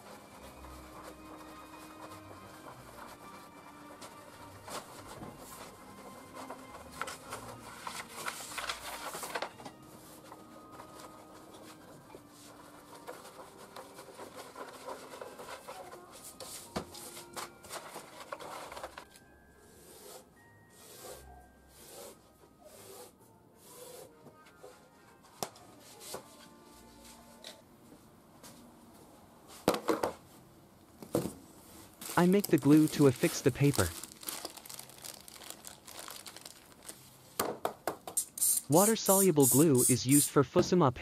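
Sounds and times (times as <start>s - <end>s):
paper sheet rustling on wood: 0.0s - 19.2s, 31.8s - 37.1s.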